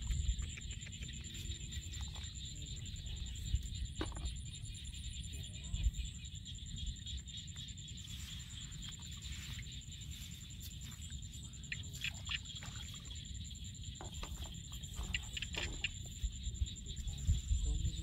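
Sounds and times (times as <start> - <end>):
steady low rumble: 0.0 - 11.7, 15.9 - 18.0
small water splashes: 11.8 - 13.2.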